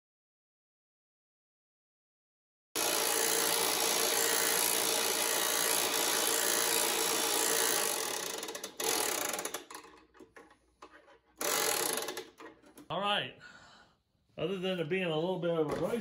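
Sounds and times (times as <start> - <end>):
electric winch running: 2.8 - 10.0, 11.4 - 12.4.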